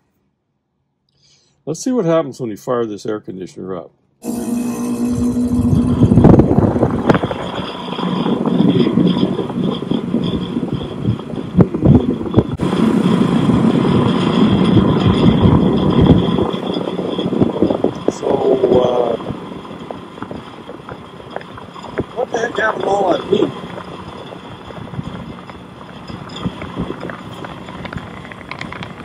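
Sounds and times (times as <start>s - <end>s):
air conditioner fan rushing: 4.2s - 20.7s.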